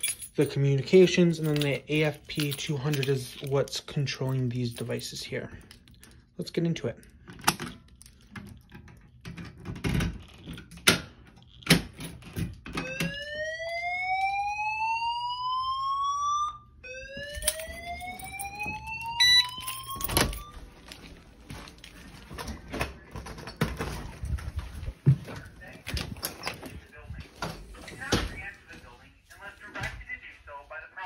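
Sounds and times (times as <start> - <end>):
fire alarm whoop tone: 12.8 - 20.6.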